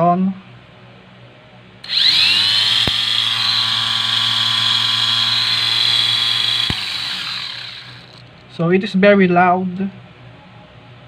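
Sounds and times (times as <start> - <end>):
small motor high whine: 1.8 - 8.3
click: 1.9 - 3.2.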